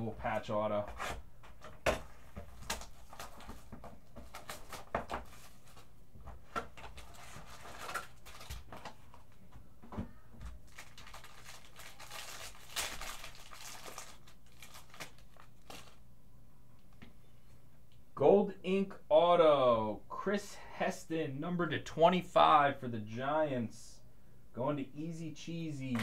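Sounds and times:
foil wrapper crinkling and tearing: 2.5s - 5.9s, 6.8s - 9.1s, 10.7s - 16.0s.

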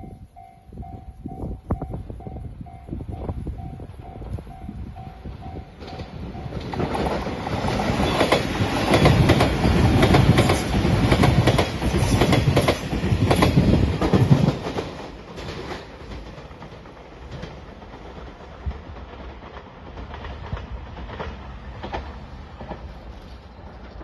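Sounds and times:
level-crossing bell ringing: 0.0s - 3.0s
train passing at speed: 0.0s - 24.0s
wheels clacking over rail joints: 5.7s - 24.0s.

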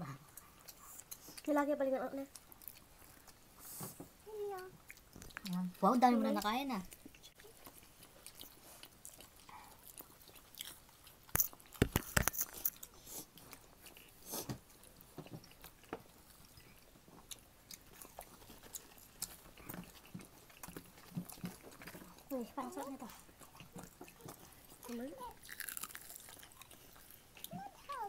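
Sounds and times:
people chewing crunchy food: 0.0s - 28.0s
sharp snaps and clicks: 11.3s - 12.8s.

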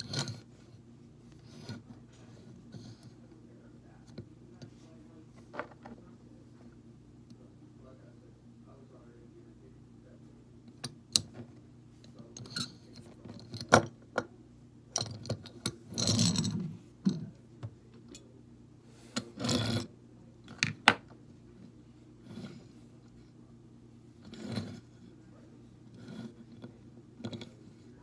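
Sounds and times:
toy cars scraping on table: 19.2s - 19.9s, 24.3s - 25.0s.

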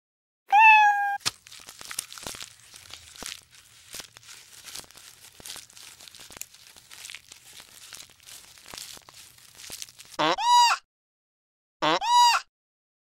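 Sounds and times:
rustling leaves and twigs: 1.2s - 10.2s
twigs snapping: 1.2s - 10.2s.

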